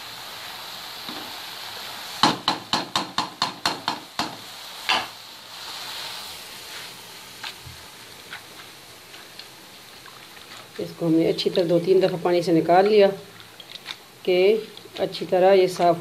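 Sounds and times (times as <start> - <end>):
soft hiss: 0.0 - 3.0, 3.7 - 16.0
wooden spoon knocking metal pan: 2.2 - 4.4.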